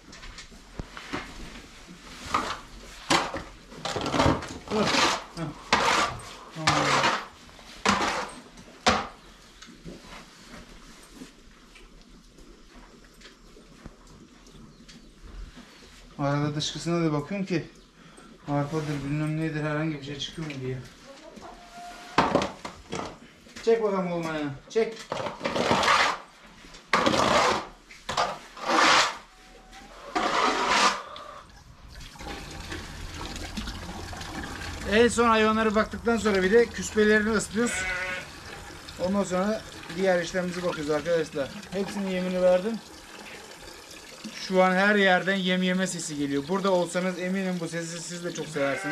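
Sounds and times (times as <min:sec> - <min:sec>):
tool scraping manure across floor: 0:00.8 - 0:08.7, 0:25.1 - 0:31.3
water splashing and gushing: 0:02.2 - 0:08.4, 0:30.1 - 0:48.7.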